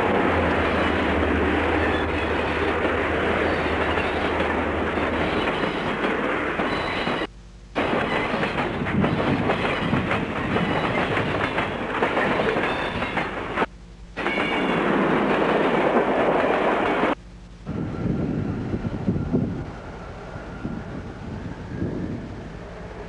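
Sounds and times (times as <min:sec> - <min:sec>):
freight train wheels clattering: 0:00.0 - 0:17.2.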